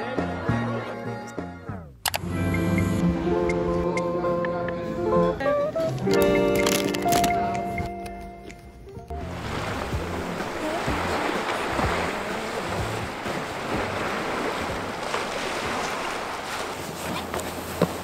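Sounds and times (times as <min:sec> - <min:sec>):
waves washing on rocky shore: 0:09.3 - 0:18.0.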